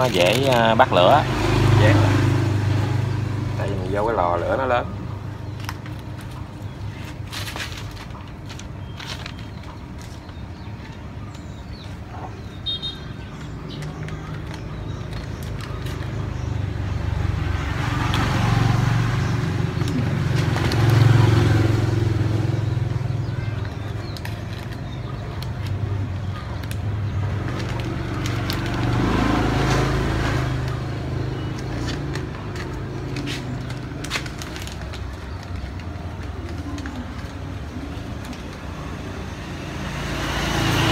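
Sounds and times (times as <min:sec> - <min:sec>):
newspaper rustling and crinkling: 0:00.0 - 0:01.2, 0:05.4 - 0:12.1, 0:13.4 - 0:16.6, 0:19.7 - 0:21.4, 0:23.6 - 0:39.0.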